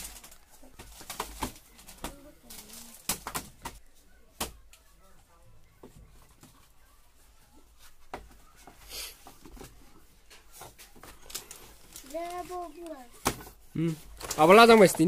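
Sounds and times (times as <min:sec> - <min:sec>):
faint talk: 0:00.1 - 0:09.2.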